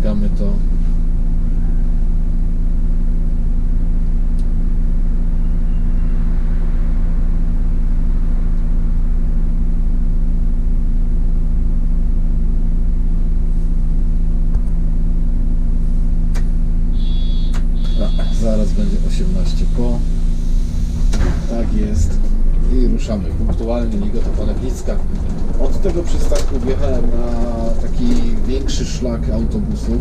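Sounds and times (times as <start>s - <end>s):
bus engine idling: 0.0s - 30.0s
high beep: 17.0s - 18.5s.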